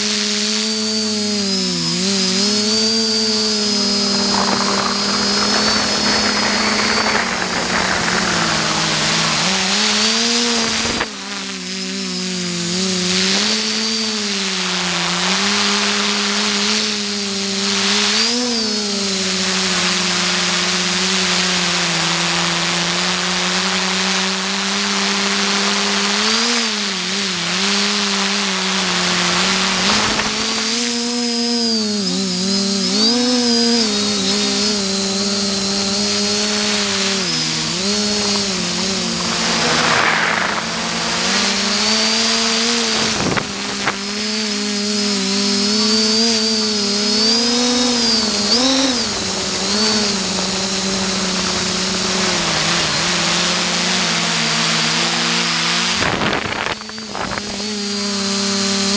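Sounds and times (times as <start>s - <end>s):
drone motors buzzing: 0.0s - 58.9s
rush of air: 3.3s - 11.1s, 38.2s - 44.2s.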